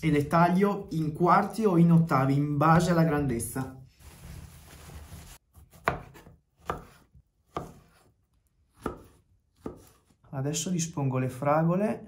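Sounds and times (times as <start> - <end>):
cloth towel rustling: 3.8 - 5.4.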